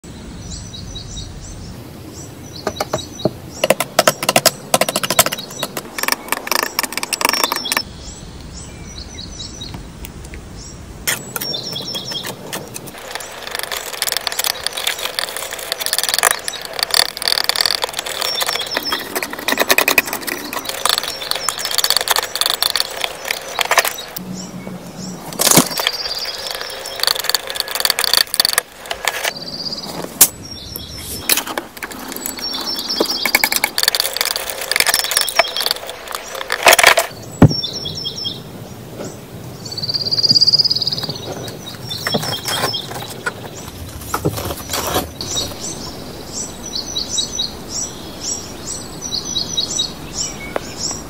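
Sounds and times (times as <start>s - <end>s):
tapping: 2.7s - 7.8s, 11.1s - 24.2s, 25.3s - 29.3s, 31.2s - 37.6s
wet paint smearing: 11.1s - 24.2s.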